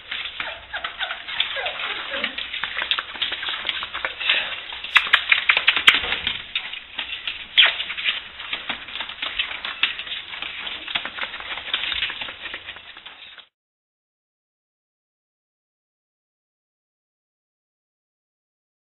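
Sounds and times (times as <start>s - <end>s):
puppy claws clicking on hard floor: 2.4s - 13.5s.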